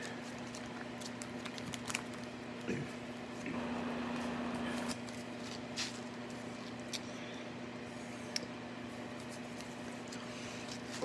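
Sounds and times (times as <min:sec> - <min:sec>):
card pack rustles: 0:00.0 - 0:02.7, 0:04.1 - 0:07.0
steady low hum: 0:00.0 - 0:11.0.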